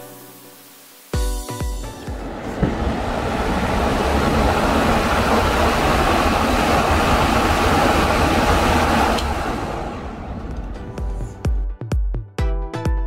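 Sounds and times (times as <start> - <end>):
electric fan running: 1.9 - 11.3.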